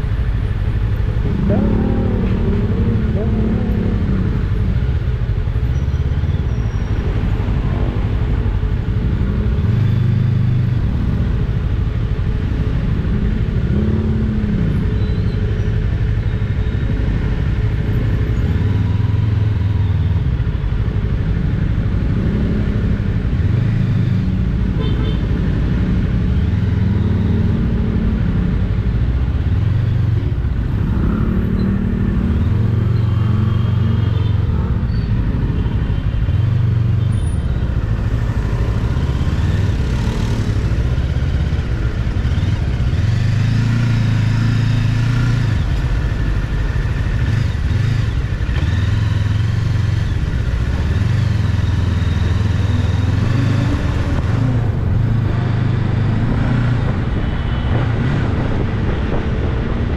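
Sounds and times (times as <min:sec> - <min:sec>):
heavy low rumble: 0:00.0 - 0:05.5
motorcycle engine running: 0:00.0 - 0:07.3
road and traffic noise: 0:00.0 - 0:59.9.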